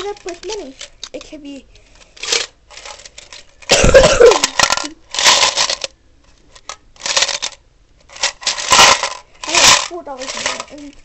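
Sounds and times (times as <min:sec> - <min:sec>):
coins rattling in tin can: 0:00.0 - 0:01.3, 0:04.2 - 0:05.9, 0:07.0 - 0:11.0.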